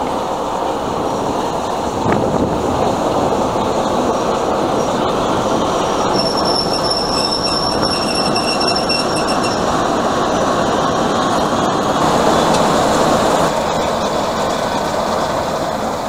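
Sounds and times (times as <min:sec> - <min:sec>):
diesel locomotive engine running: 0:00.0 - 0:16.0
high metallic squeal from train: 0:06.0 - 0:11.0.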